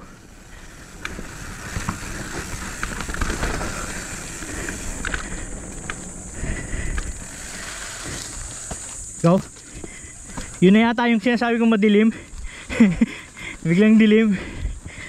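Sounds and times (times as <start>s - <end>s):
bike tyre and wind rush: 0.0s - 15.0s
bike clicks and knocks: 0.9s - 10.6s.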